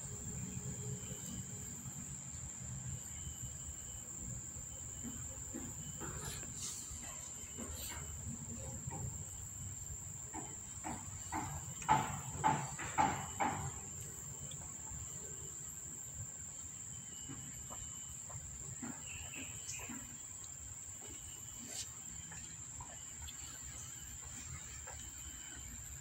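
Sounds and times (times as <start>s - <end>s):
soft rhythmic smacks: 17.1s - 26.0s.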